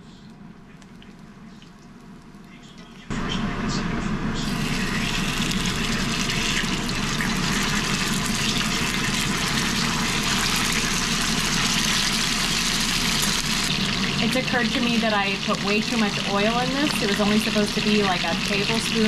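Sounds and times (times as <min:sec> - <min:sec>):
steak sizzling in hot oil: 0:04.6 - 0:19.0.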